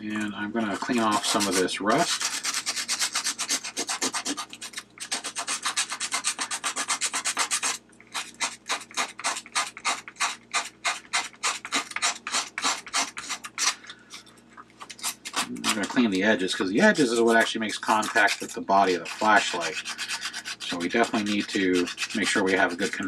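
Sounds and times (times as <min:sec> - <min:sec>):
sandpaper rubbing on metal: 0:00.7 - 0:13.7, 0:16.8 - 0:23.0.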